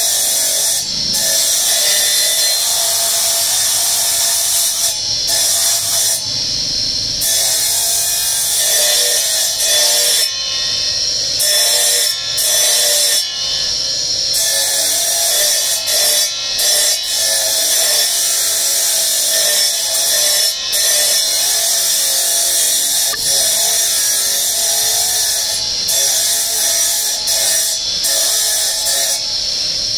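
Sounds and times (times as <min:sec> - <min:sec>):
abrasive disc grinding stone: 0:07.2 - 0:29.9.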